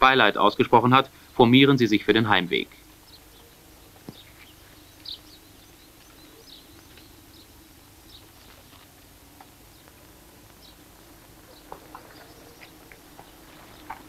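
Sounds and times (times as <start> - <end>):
low steady hum: 0.0 - 14.0
bird chirps: 2.6 - 8.7, 9.6 - 14.0.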